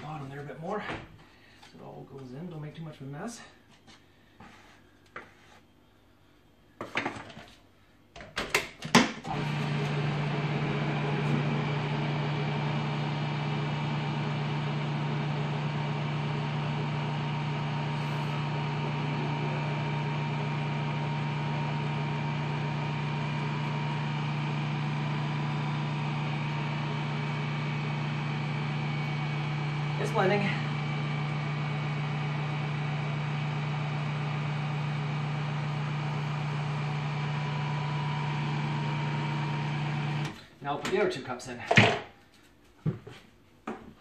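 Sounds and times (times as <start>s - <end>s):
food processor motor humming: 9.3s - 40.4s.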